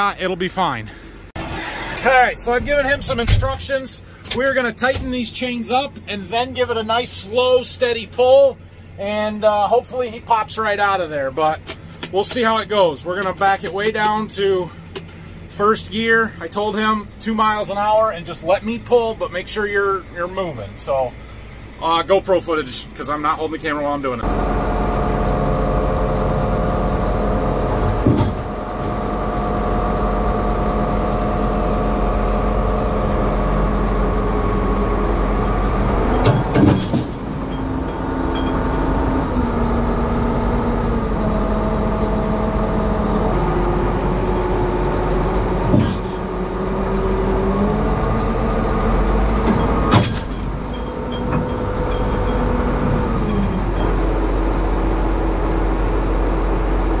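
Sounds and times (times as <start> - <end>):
tractor engines under load: 0.0 - 57.0
sharp metallic bangs: 36.1 - 39.0, 45.6 - 46.5, 49.5 - 52.3.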